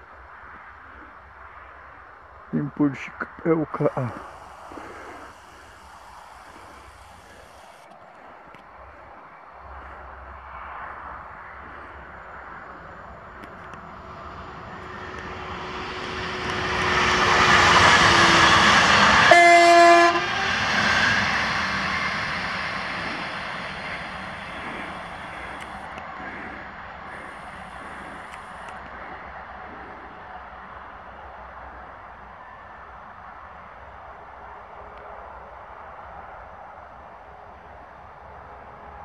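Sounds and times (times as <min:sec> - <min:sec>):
electric train passing: 0:00.0 - 0:39.0
train motor whine: 0:03.8 - 0:07.9, 0:12.6 - 0:29.1
train horn blast: 0:15.1 - 0:21.1.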